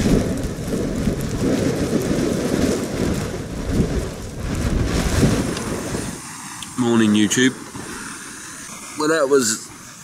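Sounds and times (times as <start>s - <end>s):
hiss of wind and drizzle: 0.0s - 10.0s
wind buffeting microphone: 0.0s - 10.0s.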